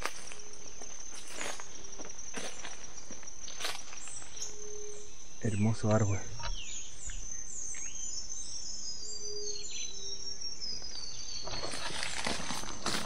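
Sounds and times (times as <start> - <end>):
footsteps in leaf litter: 0.0 - 4.4, 11.4 - 13.0
insect buzz: 0.0 - 13.0
bird chirps: 2.8 - 12.8.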